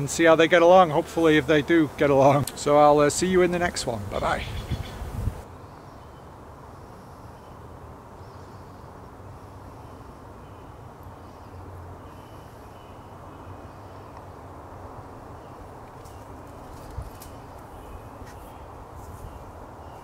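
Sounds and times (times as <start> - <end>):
low outdoor rumble: 0.0 - 5.5
faint high bird calls: 4.2 - 7.6, 8.2 - 14.3.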